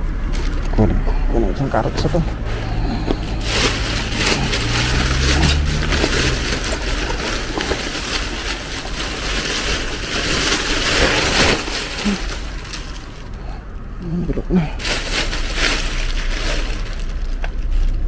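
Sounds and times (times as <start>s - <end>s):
low steady hum: 0.0s - 18.0s
plastic bag rustling and crinkling: 0.2s - 13.5s, 14.6s - 18.0s.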